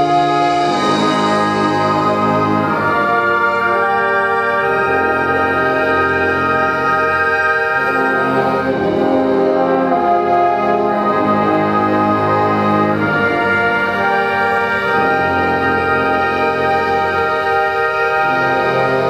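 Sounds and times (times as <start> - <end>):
concert band playing held chords: 0.0 - 19.0.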